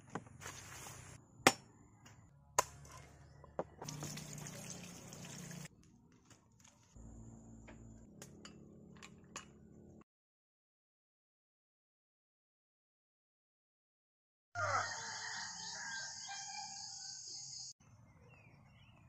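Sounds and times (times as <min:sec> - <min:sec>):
water pouring into metal colander: 0:03.8 - 0:05.7.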